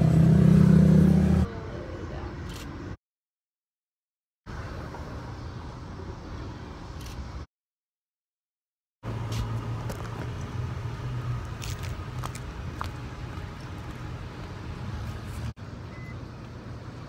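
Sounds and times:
car engine and road rumble: 0:00.0 - 0:03.0, 0:09.0 - 0:17.0.

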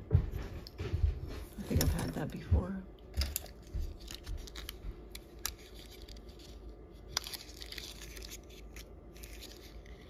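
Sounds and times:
packaging rustling: 0:03.2 - 0:10.0.

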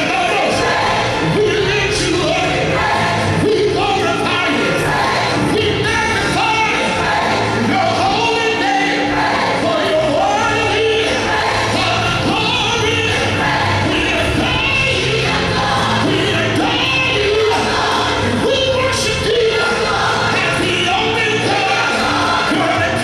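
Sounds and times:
choir singing: 0:00.0 - 0:23.0
man singing into microphone: 0:16.0 - 0:23.0.

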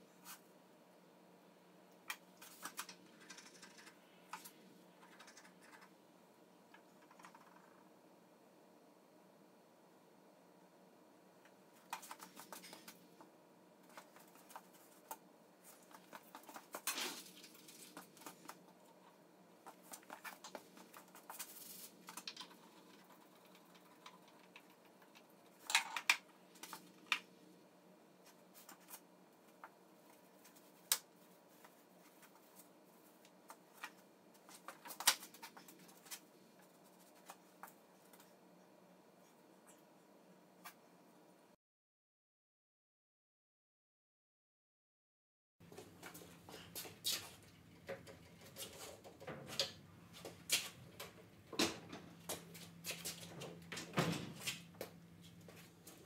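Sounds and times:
faint steady hum: 0:00.0 - 0:41.6.

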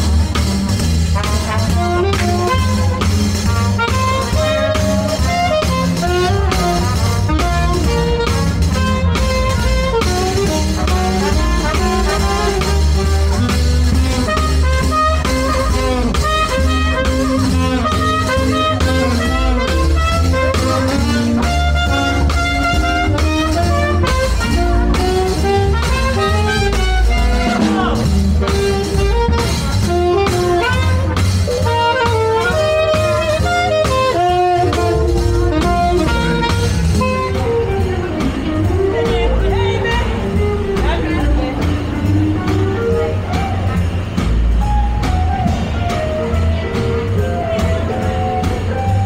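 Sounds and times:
brass: 0:00.0 - 0:49.0
drums: 0:00.0 - 0:49.0
saxophone: 0:00.0 - 0:49.0.

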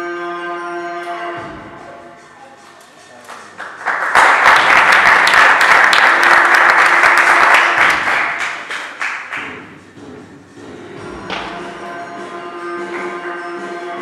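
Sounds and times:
stage music: 0:00.0 - 0:14.0
audience applauding: 0:03.2 - 0:09.6.

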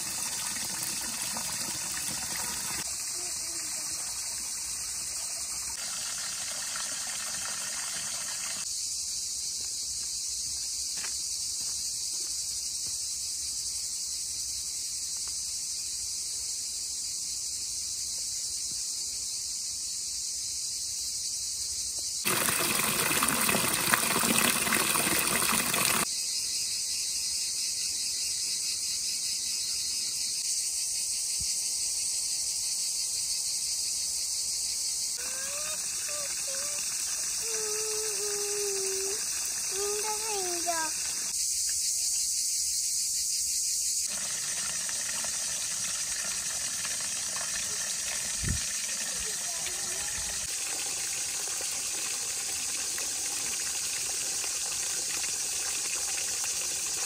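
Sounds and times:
high-pitched insect chorus: 0:00.0 - 0:23.4, 0:24.1 - 0:57.0.

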